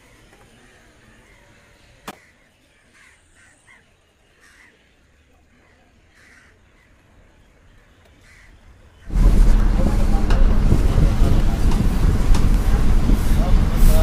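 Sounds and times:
crows cawing faintly: 0.0 - 7.2, 8.1 - 9.1.

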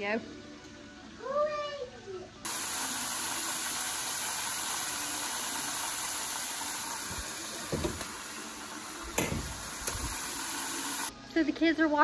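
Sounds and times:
chicken sizzling in hot oil: 2.5 - 11.1.

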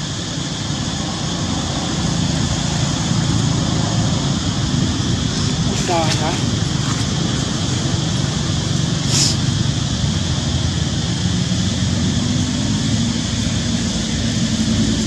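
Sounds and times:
road traffic rumble: 0.0 - 15.0
outdoor hiss: 4.9 - 9.9.

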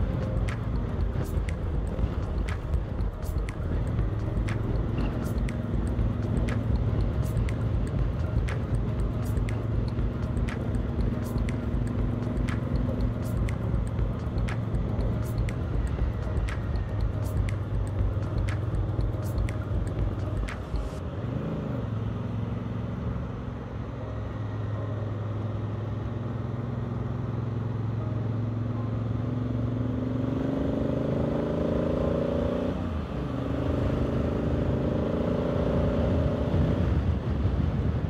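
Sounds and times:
sharp ticks: 0.0 - 21.0
wind and road noise: 0.0 - 38.0
motorcycle engine revving: 29.4 - 37.0.

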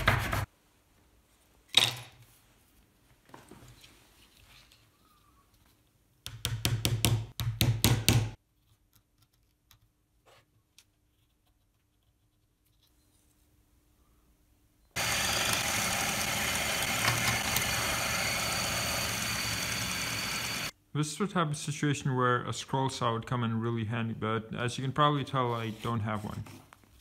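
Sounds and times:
drill press running: 15.0 - 20.7.

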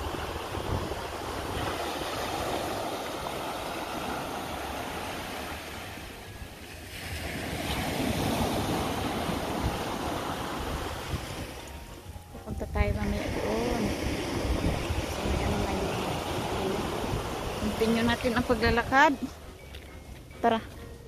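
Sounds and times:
wind rumbling on microphone: 0.0 - 19.5
waves washing on shore: 0.0 - 20.3.

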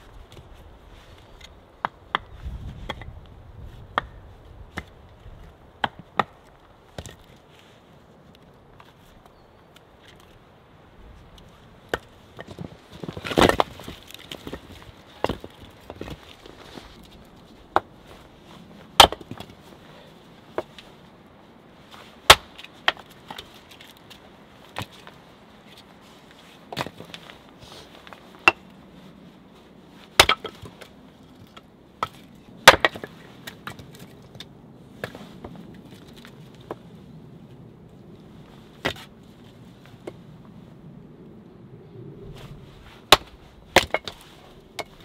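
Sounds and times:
axe chopping wood: 5.8 - 7.2, 13.2 - 16.1, 19.0 - 19.5, 22.3 - 23.5, 30.2 - 30.8, 32.0 - 33.8, 43.1 - 44.2.

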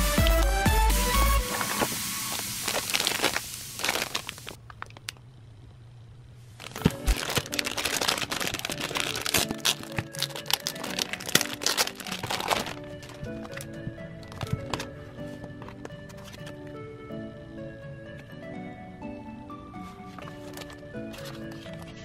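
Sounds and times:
plastic packaging crinkling: 1.5 - 5.2, 6.5 - 16.6, 19.9 - 22.0.

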